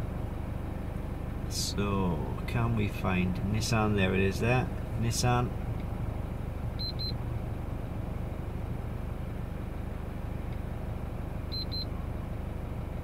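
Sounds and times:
low hum inside a car: 0.0s - 13.0s.

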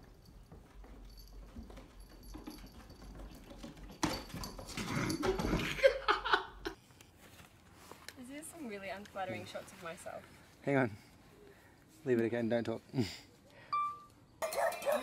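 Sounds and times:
cat scrabbling and clatter: 0.3s - 5.8s.

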